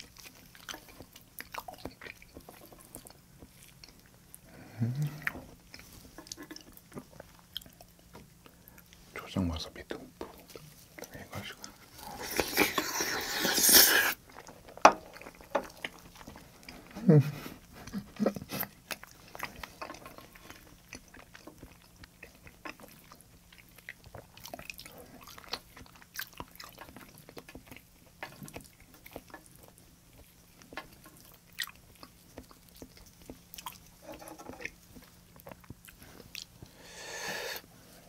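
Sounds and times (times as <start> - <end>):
mouth chewing wetly: 17.6 - 37.6.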